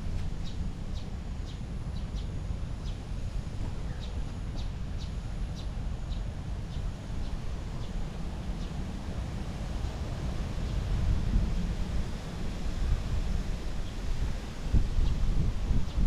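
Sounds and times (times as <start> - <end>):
wind buffeting microphone: 7.3 - 16.0.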